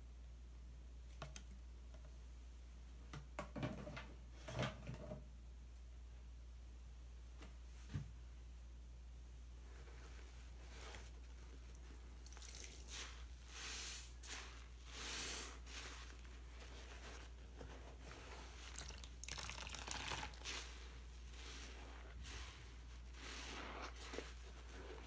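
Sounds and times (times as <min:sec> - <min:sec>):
sponges squelching in soapy water: 0:10.0 - 0:25.0
water dripping: 0:12.2 - 0:12.9, 0:18.6 - 0:20.4.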